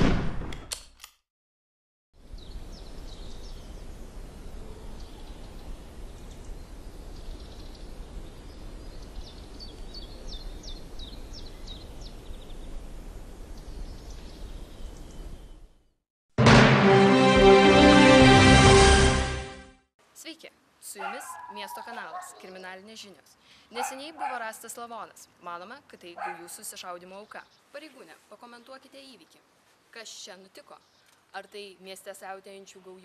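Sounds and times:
small birds chirping: 2.3 - 4.0, 4.6 - 12.9, 21.0 - 25.0, 25.6 - 28.2, 30.2 - 32.9.

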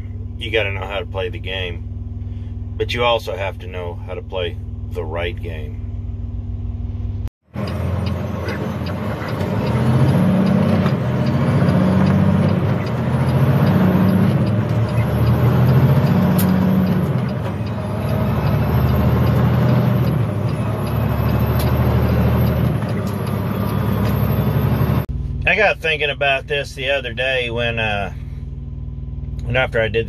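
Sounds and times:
road noise: 3.4 - 29.6
truck engine revving through gears: 6.7 - 25.1.

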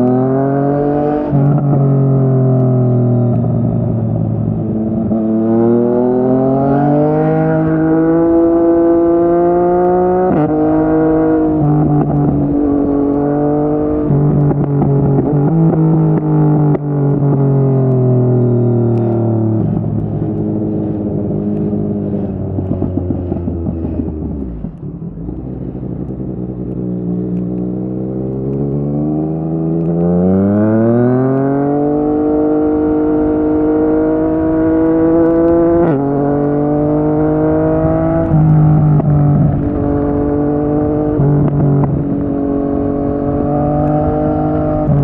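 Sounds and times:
motorcycle engine revving: 0.0 - 45.0
exhaust crackle: 10.4 - 30.0
gear upshifts: 17.1 - 45.0.

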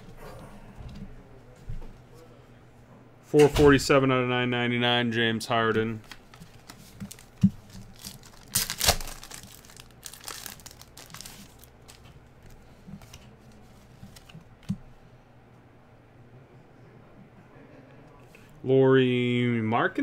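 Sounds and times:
plastic wrapper crinkling and tearing: 6.0 - 13.2.

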